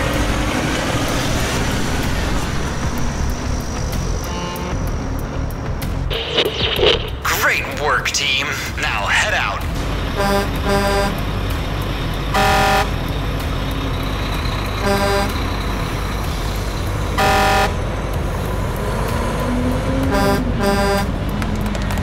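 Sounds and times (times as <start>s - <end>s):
engine rumble: 0.0s - 22.0s
truck horn honking: 4.2s - 4.8s, 10.1s - 11.3s, 12.3s - 13.2s, 14.8s - 15.5s, 17.1s - 18.0s, 20.0s - 21.2s.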